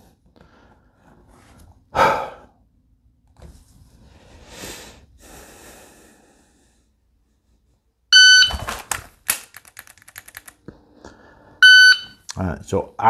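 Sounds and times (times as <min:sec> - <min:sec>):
person breathing: 0:01.9 - 0:02.6, 0:04.0 - 0:07.2, 0:10.7 - 0:11.6
shot timer beep: 0:08.2 - 0:08.6, 0:11.6 - 0:12.2.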